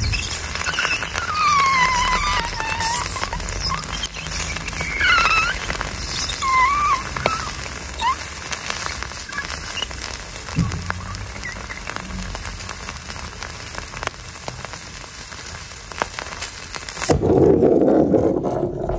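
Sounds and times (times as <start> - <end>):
short high squeals: 0.0 - 13.4
meat sizzling and crackling: 0.0 - 17.1.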